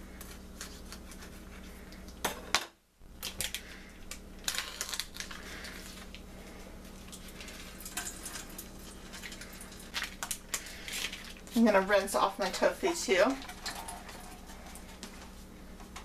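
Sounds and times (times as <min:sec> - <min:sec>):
steady low hum: 0:00.0 - 0:16.0
plastic package crinkling: 0:03.1 - 0:06.3, 0:07.0 - 0:11.6.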